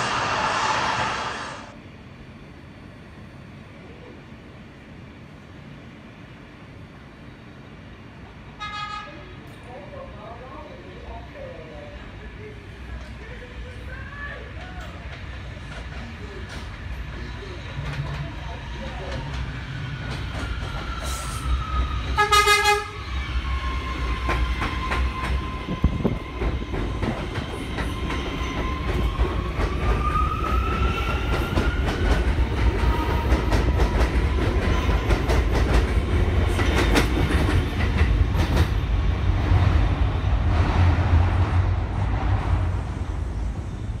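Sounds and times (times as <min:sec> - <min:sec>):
low rumble of train cars: 0:00.0 - 0:44.0
subway train horn blast: 0:08.5 - 0:09.4, 0:22.2 - 0:23.0.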